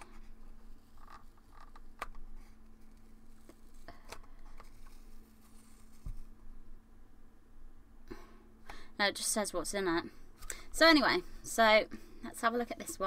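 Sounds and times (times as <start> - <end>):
faint crinkling: 0.0 - 6.8
faint steady hum: 0.0 - 13.0.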